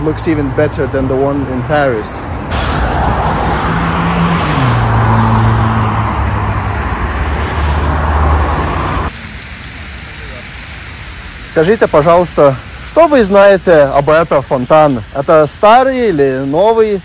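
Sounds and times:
vehicle passing with engine: 1.8 - 9.1.

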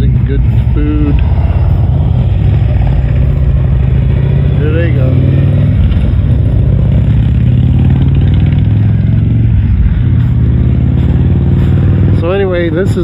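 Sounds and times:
motorcycle engines running: 0.0 - 13.0.

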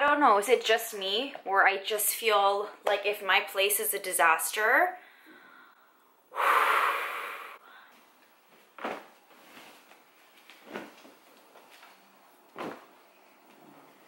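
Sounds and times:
woman blowing out breath: 6.3 - 7.8.

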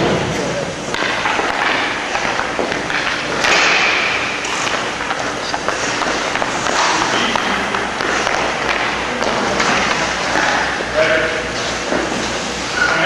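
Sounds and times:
skates scraping on ice: 0.9 - 10.8
sticks and pucks clacking: 0.9 - 10.9, 11.5 - 13.0.

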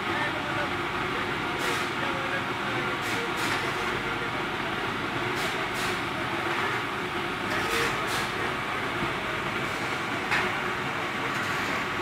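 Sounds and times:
boiler plant mechanical noise: 0.0 - 12.0.

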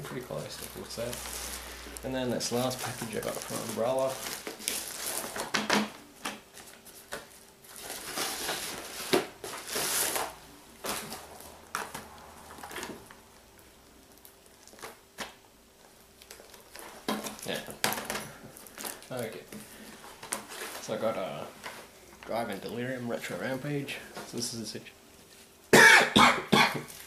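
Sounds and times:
bubble mailer crinkling: 0.0 - 24.5.

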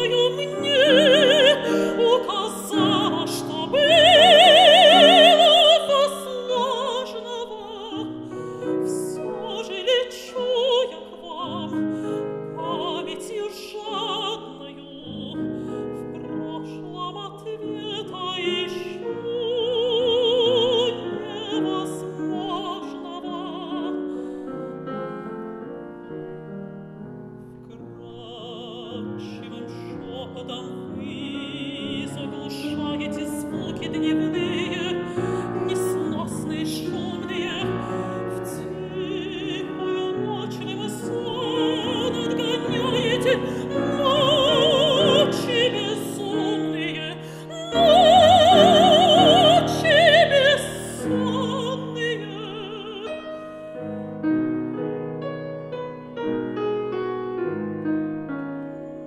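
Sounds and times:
woman singing with vibrato: 0.0 - 24.2, 27.7 - 53.7
piano accompaniment: 0.0 - 59.0.

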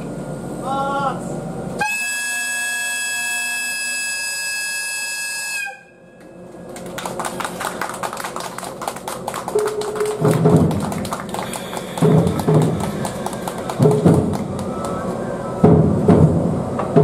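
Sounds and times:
locomotive air horn blast: 1.8 - 6.1, 11.4 - 13.6.

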